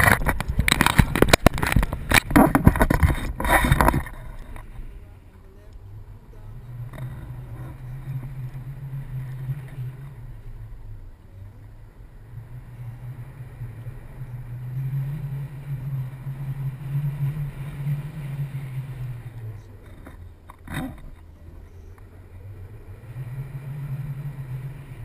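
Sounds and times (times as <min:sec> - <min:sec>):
wind on microphone: 0:00.0 - 0:04.9, 0:11.7 - 0:25.0.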